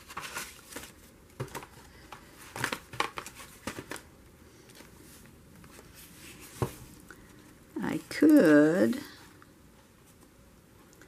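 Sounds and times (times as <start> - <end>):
paper rustling and tapping: 0.0 - 4.1.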